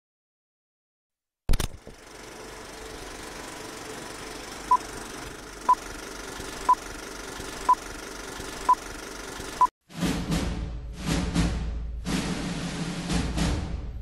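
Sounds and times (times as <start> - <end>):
film projector whirring: 1.5 - 9.7.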